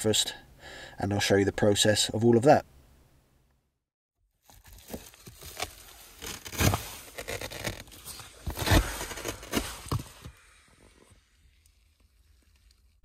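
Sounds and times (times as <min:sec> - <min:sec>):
rustling and crinkling: 0:04.4 - 0:13.0.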